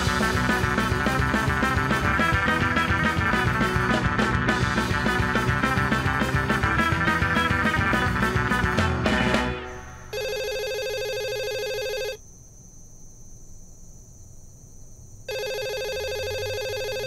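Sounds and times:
guitar rock music: 0.0 - 10.1
telephone ringing: 10.0 - 12.2, 15.3 - 17.0.

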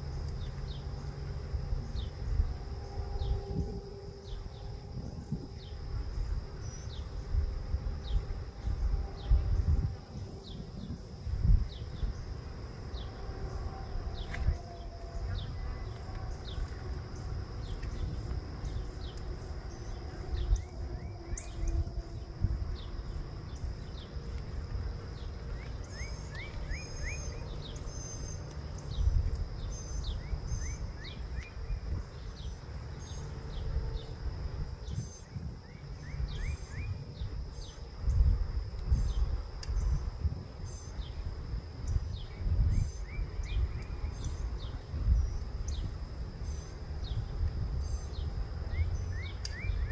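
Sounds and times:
low uneven rumble: 0.0 - 36.3
high insect drone: 0.0 - 49.9
birds calling: 14.1 - 33.3.

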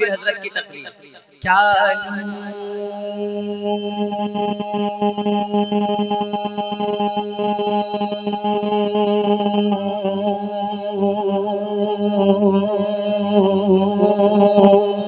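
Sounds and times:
man singing ornamented note: 0.0 - 0.8.

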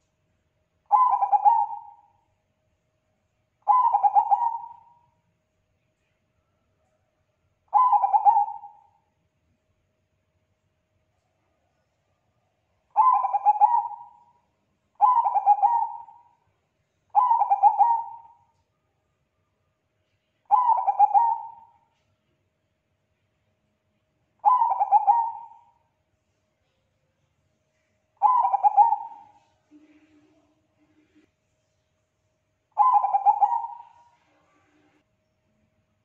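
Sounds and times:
dove cooing: 0.9 - 2.1, 3.7 - 5.0, 7.7 - 8.9, 12.9 - 14.3, 15.0 - 16.3, 17.1 - 18.4, 20.5 - 21.8, 24.4 - 25.8, 28.2 - 30.5, 32.8 - 34.5.

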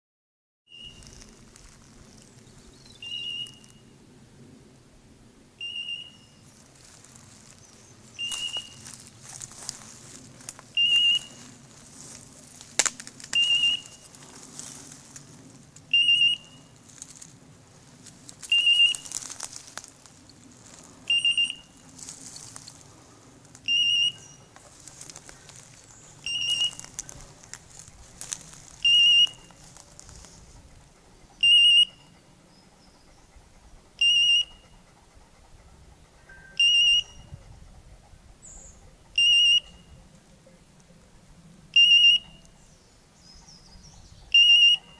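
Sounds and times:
footsteps through dry brush: 0.8 - 3.5, 6.4 - 30.8
twig snapping: 12.0 - 13.6, 18.0 - 19.9, 26.7 - 28.8.

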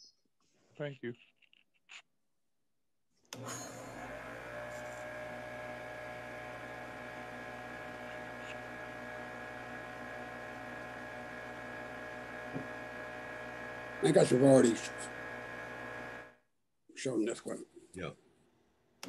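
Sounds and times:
electric motor humming and whining: 3.4 - 16.4.

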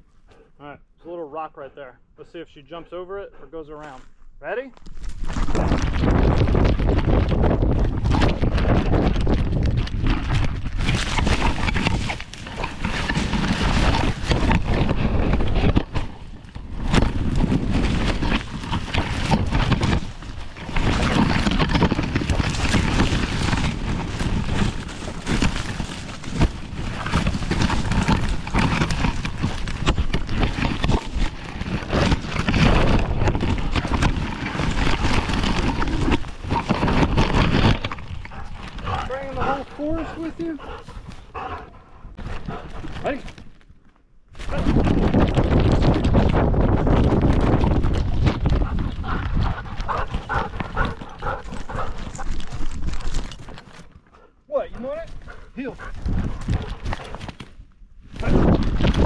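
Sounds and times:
ferns and twigs scraping: 3.6 - 59.0
dog paws thudding: 44.4 - 57.5.

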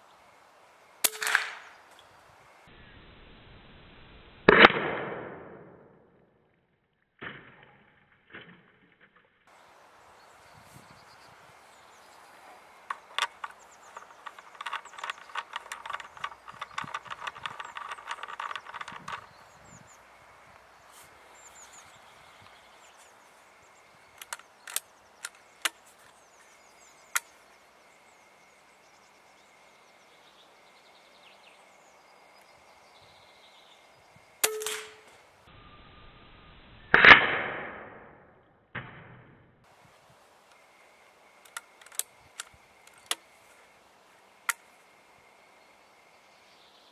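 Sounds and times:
air rifle shot: 1.0 - 1.8, 4.4 - 5.9, 36.9 - 38.1
rapid clicks: 12.8 - 19.4, 24.2 - 26.1
sharp click: 34.4 - 35.2.

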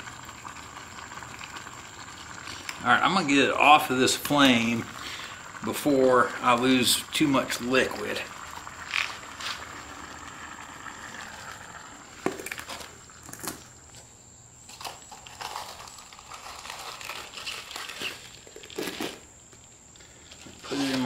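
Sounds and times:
foil crinkling: 14.7 - 21.0.

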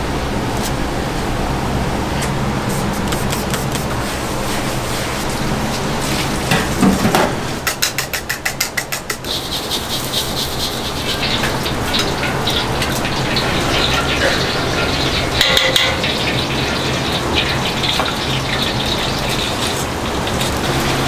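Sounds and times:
gas burners and extraction roar: 0.0 - 21.0
wok hissing over gas flame: 2.4 - 21.0
clatter of utensils: 6.5 - 21.0.

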